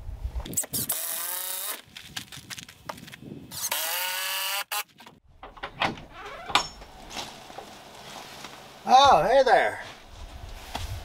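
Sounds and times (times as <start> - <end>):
cordless drill driving screws: 0.6 - 1.8, 3.5 - 4.8.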